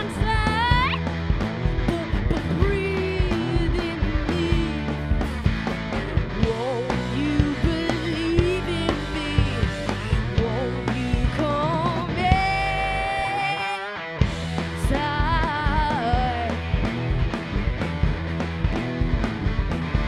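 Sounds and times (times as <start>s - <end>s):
woman singing: 0.0s - 1.0s, 1.8s - 5.2s, 6.4s - 14.0s, 14.7s - 16.7s
rock band playing: 0.0s - 20.0s.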